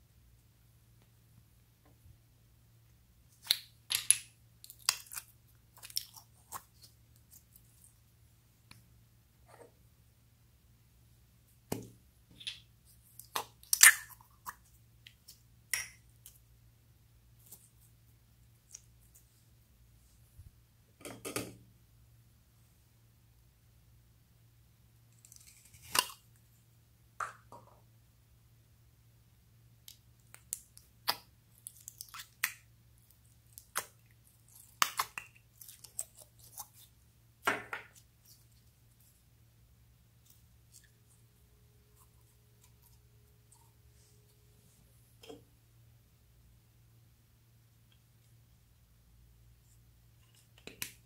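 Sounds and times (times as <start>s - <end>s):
slime squelch: 4.5s - 8.3s, 29.8s - 37.1s
slime squishing and popping: 13.2s - 14.5s.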